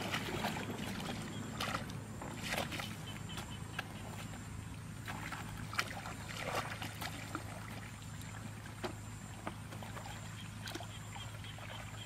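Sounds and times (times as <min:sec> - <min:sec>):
muddy water splashing: 0:00.0 - 0:12.0.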